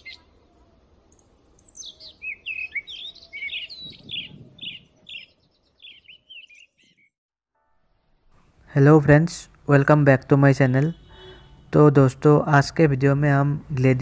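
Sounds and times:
songbird chirping and whistling: 0.0 - 0.3, 1.1 - 7.1.

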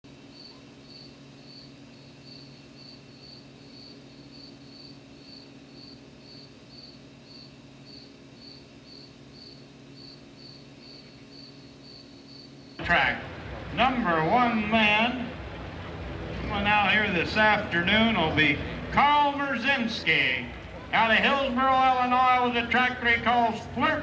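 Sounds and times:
faint electrical hum: 0.1 - 24.0
cricket chirping: 0.3 - 12.8.

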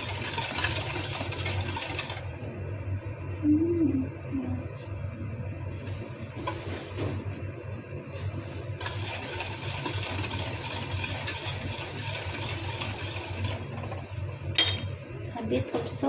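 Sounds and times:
whisk clinking against metal bowl: 8.8 - 14.9.

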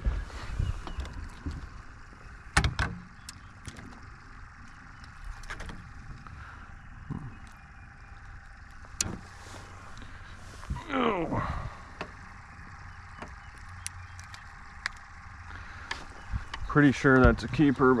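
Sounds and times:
small ticks: 3.0 - 9.2, 12.0 - 16.7.

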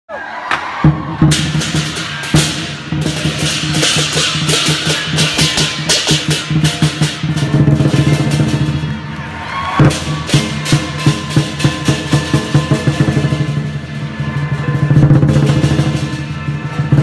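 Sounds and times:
large drum beating: 0.8 - 17.0
hand cymbals crashing: 1.3 - 8.8.

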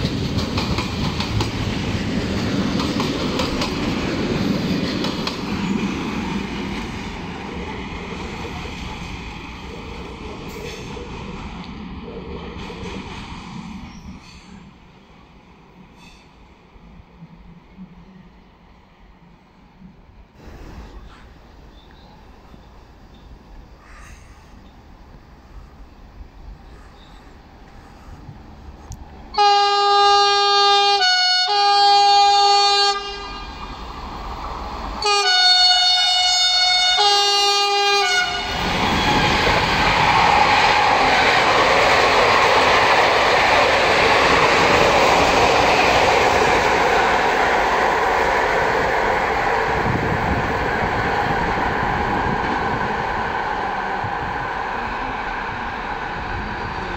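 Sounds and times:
train wheels rumbling on rails: 0.0 - 31.1, 31.8 - 56.9
locomotive horn blasts: 29.4 - 33.6, 35.0 - 38.6.

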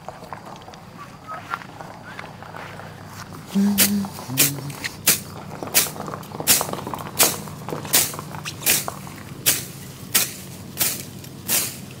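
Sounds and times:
sickle swishing through grass: 7.9 - 12.0.

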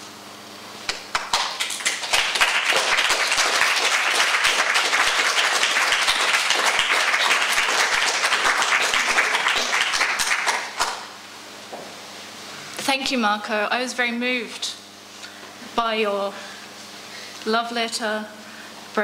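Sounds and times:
audience applauding: 0.9 - 11.1.

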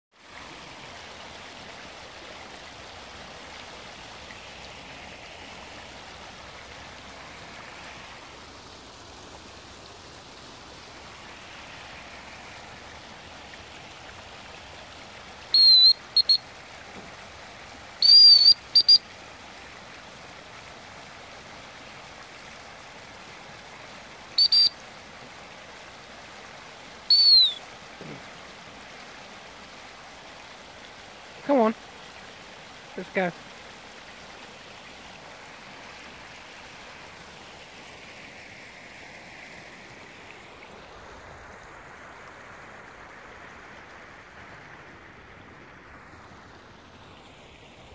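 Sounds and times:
floodwater rushing: 0.1 - 47.9
short high whistles: 15.5 - 16.4, 18.0 - 19.0, 24.4 - 24.7, 27.1 - 27.6.

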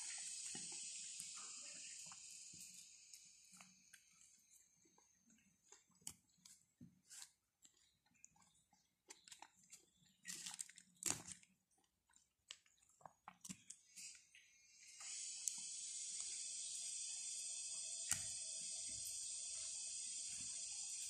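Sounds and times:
chewing: 0.1 - 14.2
bread tearing: 9.1 - 11.6.

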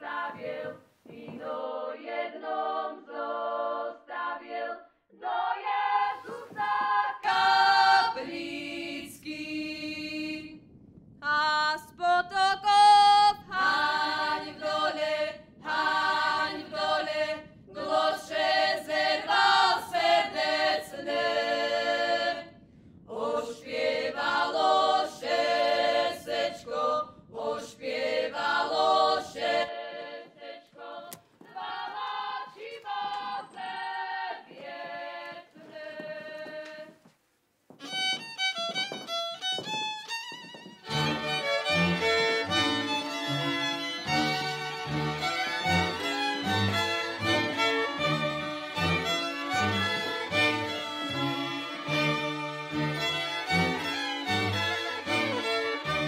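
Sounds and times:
women singing together: 0.0 - 10.6, 11.2 - 37.0.

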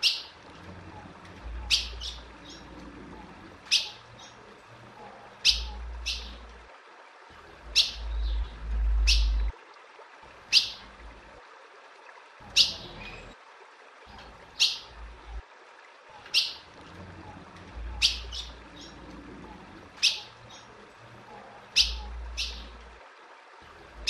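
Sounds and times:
low rumble: 8.0 - 9.5.

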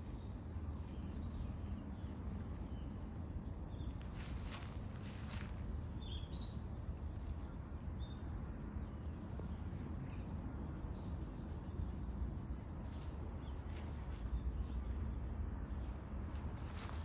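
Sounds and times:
low outdoor rumble: 0.0 - 17.0
small birds chirping: 3.7 - 6.7.

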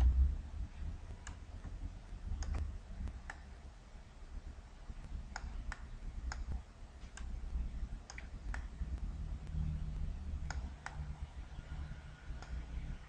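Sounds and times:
low background hum: 0.0 - 13.0
mouse buttons clicking: 2.4 - 3.5, 5.3 - 7.4, 8.0 - 9.7, 10.4 - 11.2, 12.3 - 12.8.

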